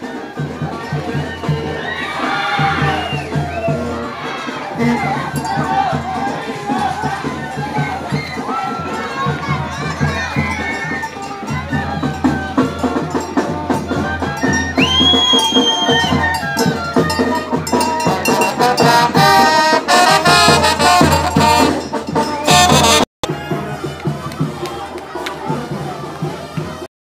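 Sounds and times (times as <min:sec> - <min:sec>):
brass band music: 0:00.0 - 0:26.9.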